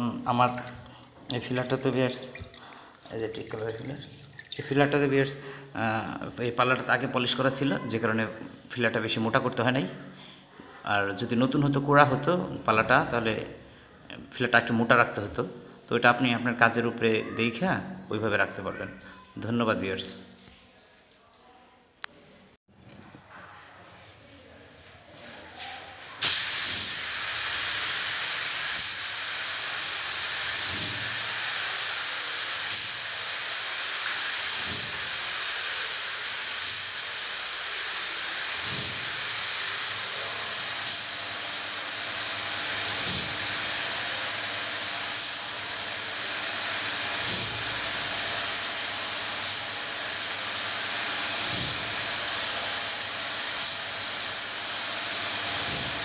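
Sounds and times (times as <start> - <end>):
paint spray gun hissing: 26.2 - 56.0.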